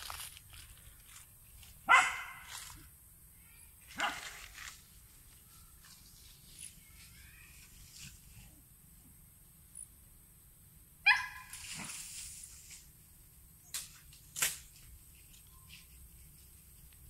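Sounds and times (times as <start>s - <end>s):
dog barking: 1.9s - 2.5s, 4.0s - 4.3s, 11.0s - 11.5s.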